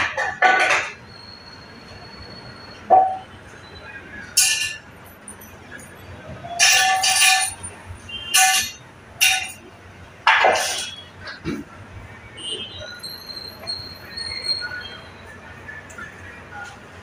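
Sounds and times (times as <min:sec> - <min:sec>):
metal tools clinking: 0:04.4 - 0:09.6, 0:10.3 - 0:11.0.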